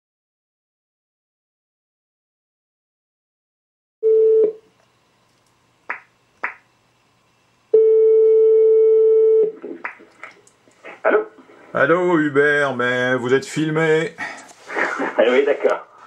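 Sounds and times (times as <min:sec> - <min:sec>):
phone beep: 0:04.0 - 0:04.6, 0:07.8 - 0:09.6.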